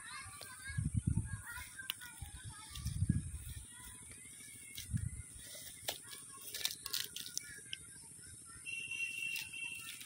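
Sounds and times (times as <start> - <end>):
leaves rustling and crackling: 1.4 - 7.6, 9.1 - 10.0
footsteps on ground: 1.4 - 7.7.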